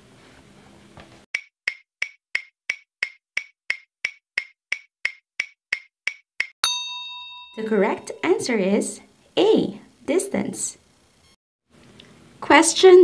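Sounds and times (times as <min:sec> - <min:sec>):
quiz timer ticking: 0:01.4 - 0:06.6.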